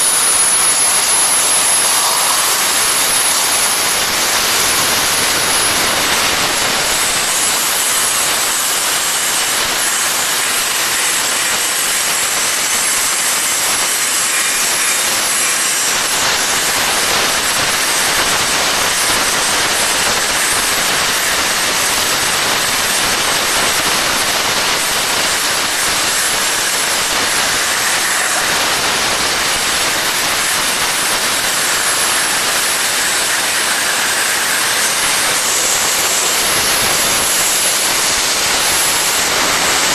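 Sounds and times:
plasma torch cutting steel: 0.0s - 39.9s.

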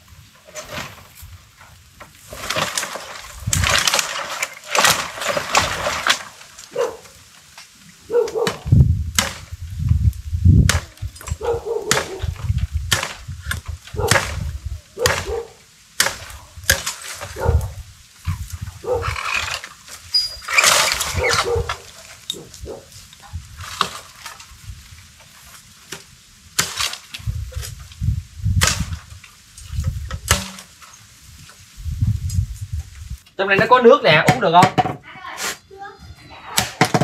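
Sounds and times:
crash of bamboo stems and leaves: 0.0s - 34.6s
blade chopping bamboo: 8.4s - 9.5s, 11.9s - 12.2s, 12.9s - 15.4s, 16.0s - 17.4s, 28.6s - 29.0s, 30.2s - 30.8s.

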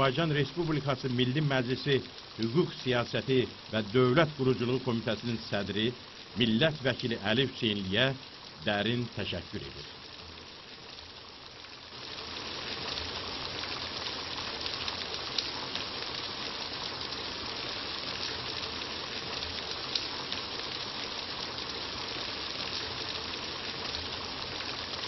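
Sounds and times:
faint ticks: 14.6s - 15.9s, 19.4s - 20.8s.

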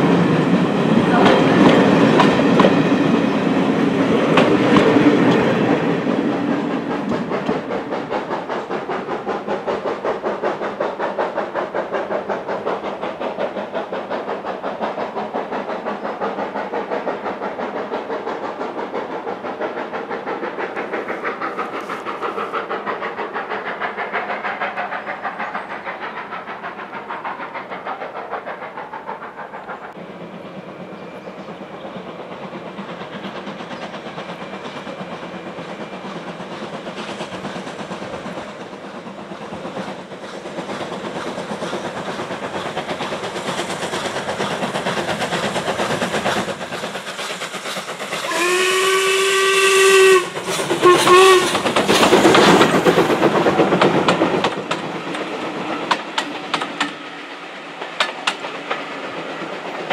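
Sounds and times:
steam locomotive chuffing: 0.0s - 59.9s
wheels clicking over rail joints: 0.2s - 59.9s
exhaust and steam burst: 31.6s - 59.9s
steam whistle: 48.3s - 51.6s.

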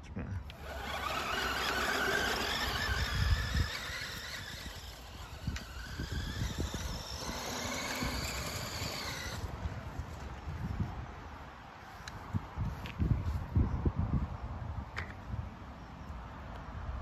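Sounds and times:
toy truck electric motor whining: 0.5s - 9.5s.

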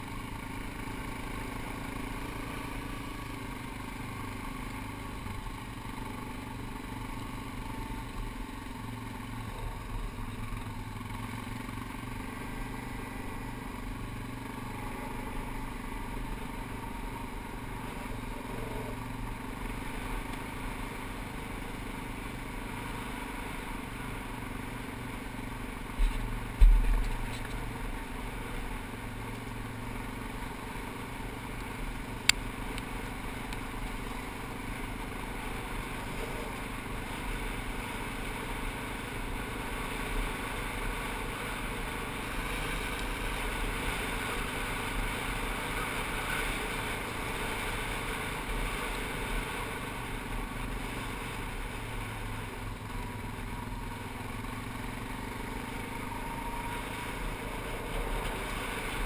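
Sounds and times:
atv engine running: 0.0s - 59.0s
heavy low thump: 26.0s - 27.2s.

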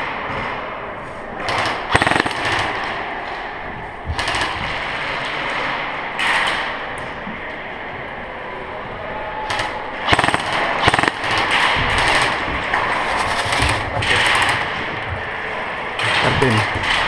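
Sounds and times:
airsoft guns firing bursts: 1.4s - 3.0s, 4.1s - 5.1s, 9.5s - 14.9s.

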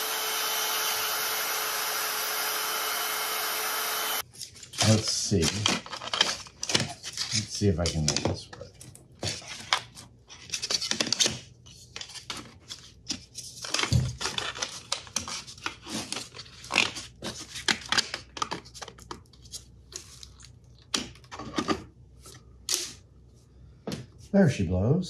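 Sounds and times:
plastic parts scraping and clicking: 4.4s - 23.0s.

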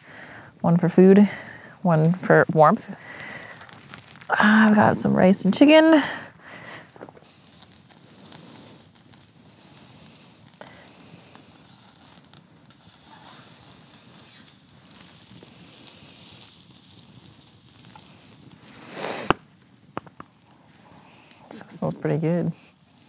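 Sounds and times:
fire crackling: 0.0s - 23.0s
chicken sizzling on grill: 0.2s - 23.0s.

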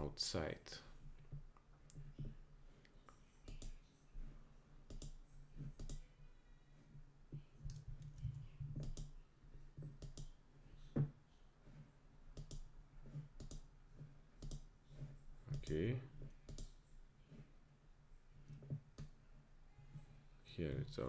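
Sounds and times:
faint low hum: 0.0s - 21.0s
computer mouse clicking: 2.8s - 3.8s, 4.8s - 6.1s, 7.6s - 9.2s, 9.8s - 10.4s, 12.3s - 13.7s, 14.3s - 14.7s, 15.5s - 16.8s, 18.4s - 19.2s.

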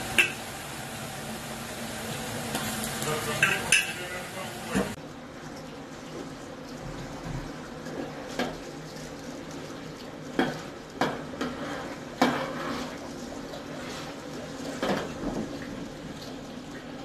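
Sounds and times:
vegetables sizzling in oil: 0.0s - 5.0s
metal spatula scraping pot: 11.4s - 12.9s.

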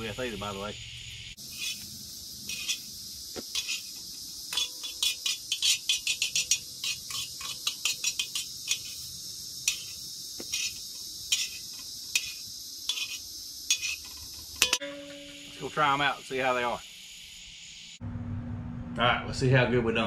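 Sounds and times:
burner hiss: 0.0s - 18.0s
metal tongs scraping a pan: 1.4s - 15.4s.

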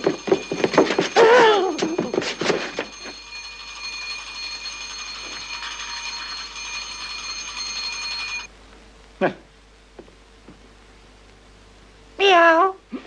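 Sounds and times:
electric bell ringing: 0.0s - 8.5s.

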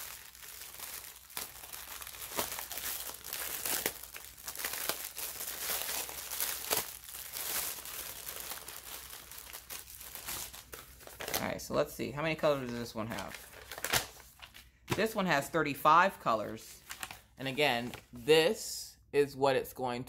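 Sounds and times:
plastic packaging crinkling: 0.0s - 15.1s, 16.8s - 18.1s.

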